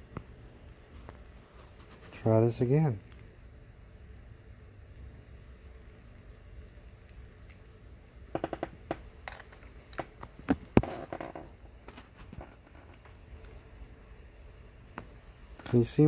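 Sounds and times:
tablet clicks and taps: 8.4s - 9.0s.

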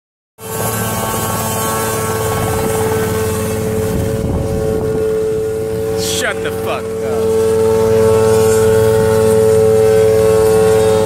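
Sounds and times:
helicopter engine and rotor: 0.4s - 11.0s.

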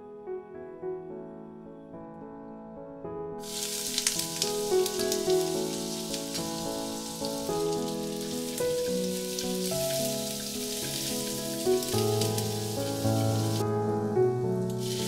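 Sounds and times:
soft piano music: 0.0s - 15.0s
food sizzling in a frying pan: 3.4s - 13.6s, 14.7s - 15.0s.

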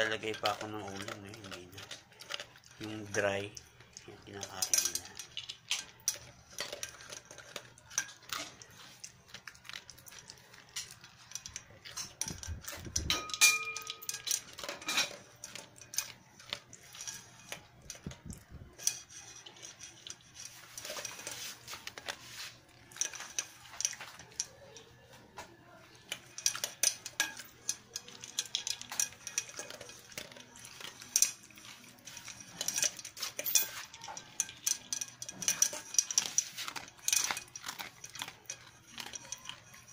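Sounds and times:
dog crunching dry kibble: 0.0s - 25.2s, 25.9s - 39.9s
metal pot clanking and ringing: 10.7s - 16.2s, 26.2s - 39.9s.

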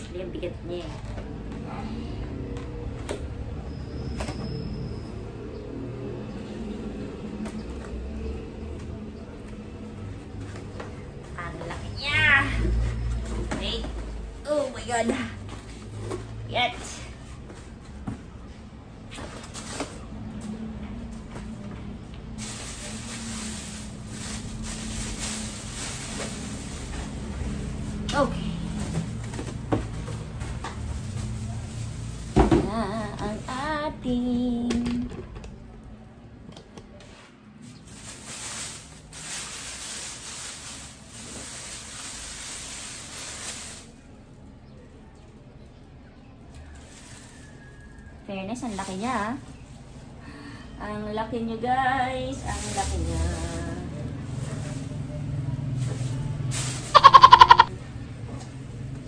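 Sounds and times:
plastic bag crinkling: 22.4s - 28.0s.

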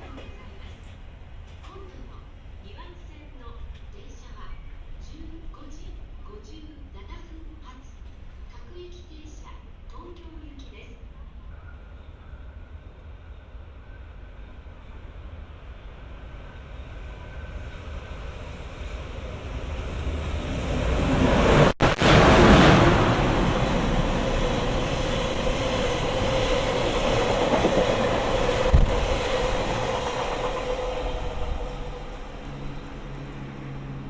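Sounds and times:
electric locomotive passing: 11.1s - 34.0s
train wheel clatter: 24.1s - 32.3s.

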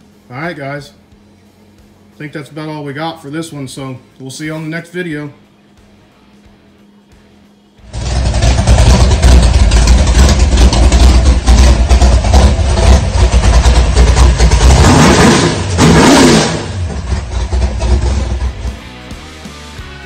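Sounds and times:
engine running and revving: 7.8s - 20.0s.

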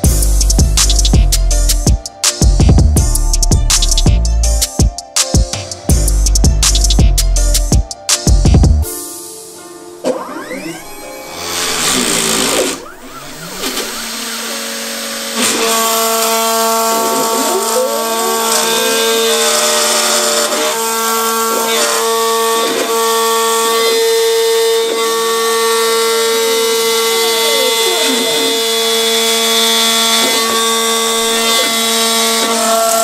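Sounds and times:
spindle motor whine: 10.0s - 33.0s
stepper motors sweeping in pitch: 10.0s - 33.0s.

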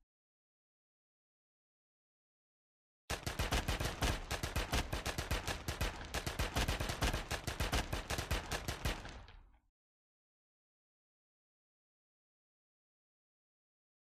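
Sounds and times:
automatic gunfire: 3.1s - 9.5s.

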